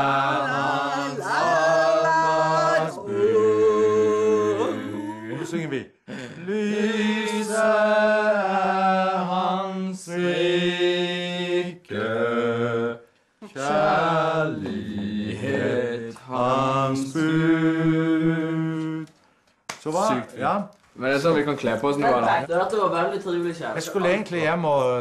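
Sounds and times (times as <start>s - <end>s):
voices singing a hymn unaccompanied: 0.0s - 5.8s, 6.4s - 19.2s.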